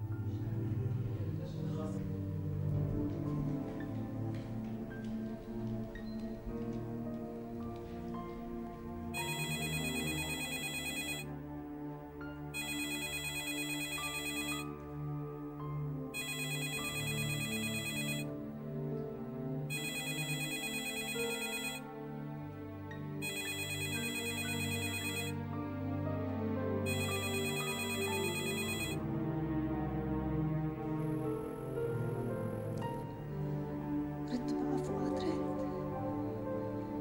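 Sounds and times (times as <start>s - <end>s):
soft soundtrack music: 0.0s - 37.0s
telephone ringing: 9.2s - 11.3s, 12.6s - 14.7s, 16.2s - 18.3s, 19.7s - 21.8s, 23.2s - 25.4s, 26.9s - 29.0s.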